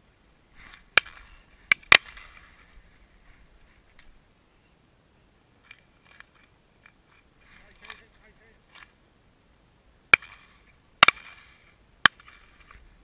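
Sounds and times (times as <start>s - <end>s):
sharp cracks: 0.6s - 2.8s, 10.1s - 12.8s.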